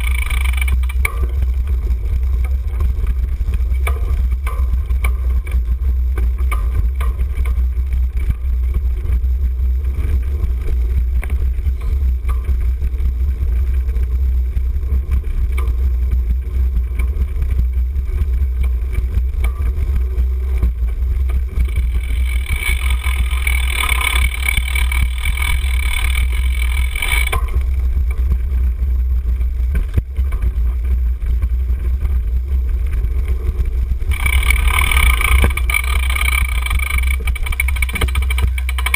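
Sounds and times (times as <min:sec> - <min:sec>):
high mechanical buzz: 0:00.0 - 0:38.9
wind and ground rumble on microphone: 0:00.0 - 0:38.9.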